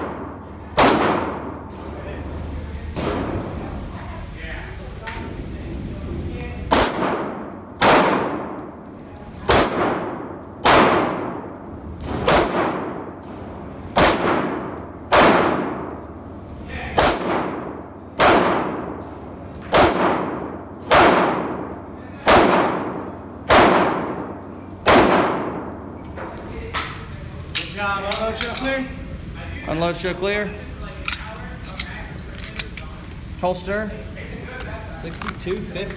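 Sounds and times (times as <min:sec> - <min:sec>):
pistol shots echoing indoors: 0:00.0 - 0:01.8, 0:06.7 - 0:26.0.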